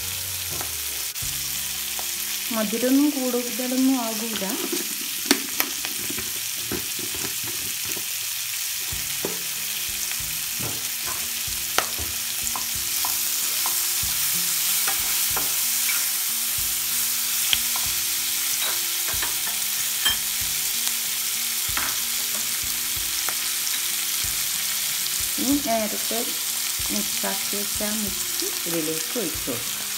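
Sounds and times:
vegetables sizzling in oil: 0.0 - 29.9.

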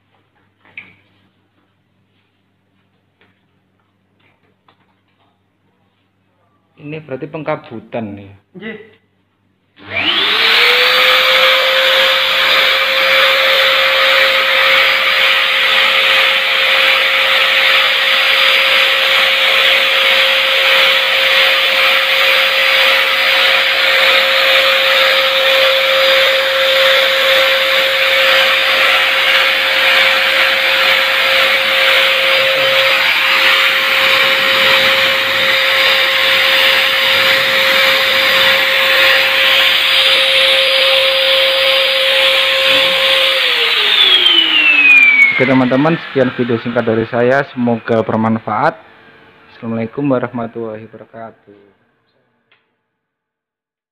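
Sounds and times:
blower motor high whine: 9.8 - 51.1.

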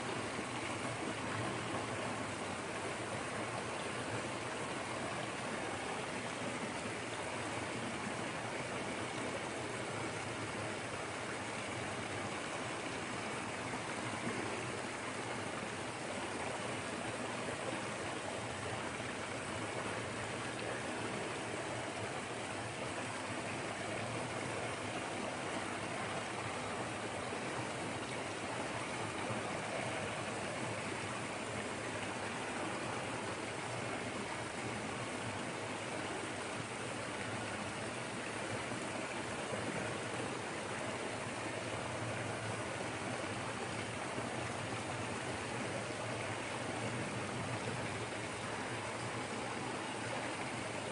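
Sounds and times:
waterfall rushing: 9.2 - 37.4.

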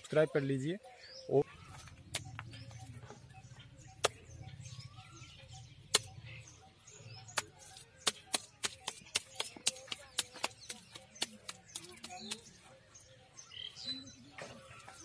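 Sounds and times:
wet clay slapping: 4.0 - 4.3, 5.9 - 6.1, 7.3 - 12.6.

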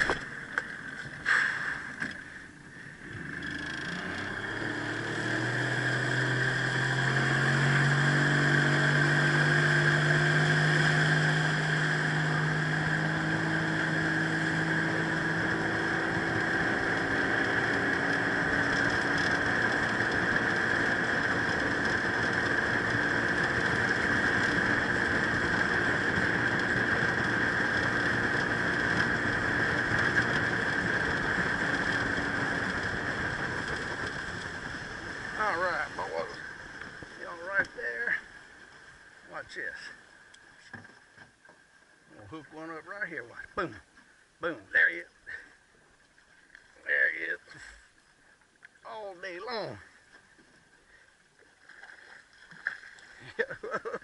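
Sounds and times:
outboard motor running: 0.0 - 54.0
constant hiss: 33.6 - 54.0.

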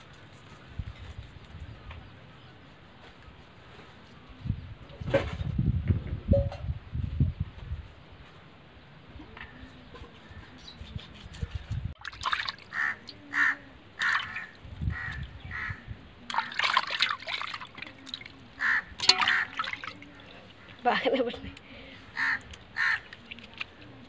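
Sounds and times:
water splashing in metal bowl: 12.0 - 15.2, 16.3 - 21.4, 22.1 - 24.0.

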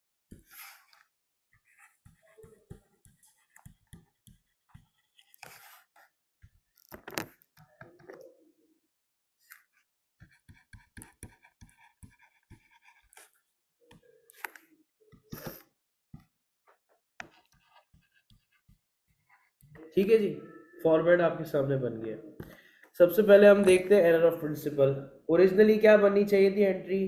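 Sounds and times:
stylus tapping and scratching tablet: 0.3 - 8.2, 9.5 - 15.6, 16.2 - 20.8.

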